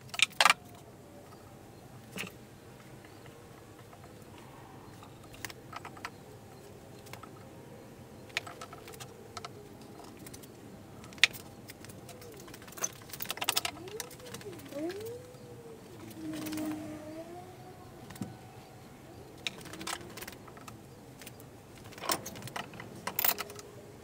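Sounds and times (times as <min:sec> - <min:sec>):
wooden parts clicking and knocking: 0:00.0 - 0:01.4, 0:08.2 - 0:17.0, 0:19.3 - 0:23.8
faint wavering tone: 0:00.7 - 0:21.1.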